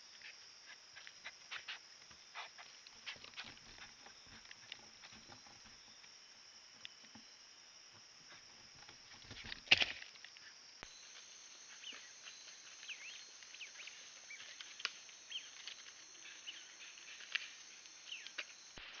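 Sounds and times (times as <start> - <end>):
high insect buzz: 0.0 - 19.0
isolated ticks: 0.1 - 18.8
small animals chirping: 10.8 - 18.5.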